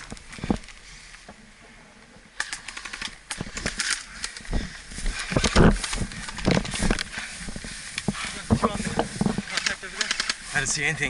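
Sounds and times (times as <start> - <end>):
footsteps through dry brush: 3.4 - 11.0.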